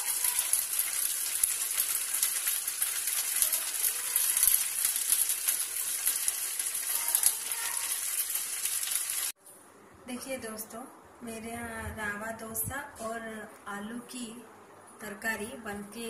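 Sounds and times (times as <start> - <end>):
batter sizzling in oil: 0.0 - 9.4
small crackles: 0.0 - 9.4.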